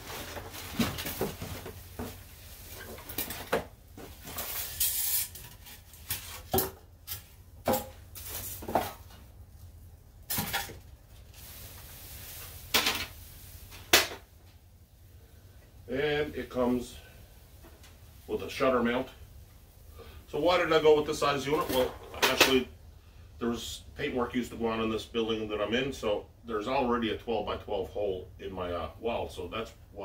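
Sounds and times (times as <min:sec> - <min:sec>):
plastic bag rustling: 0:00.0 - 0:06.5, 0:10.4 - 0:13.9.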